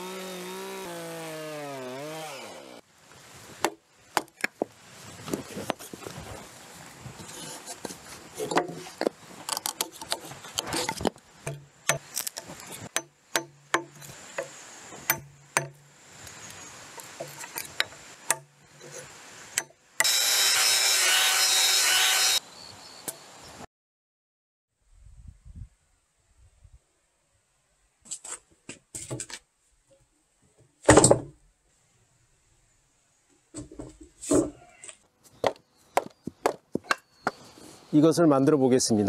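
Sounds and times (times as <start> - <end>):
angle grinder sanding wood: 0.0 - 2.8, 20.0 - 22.4
chisel knocking and scraping wood: 7.2 - 15.8, 17.1 - 19.0.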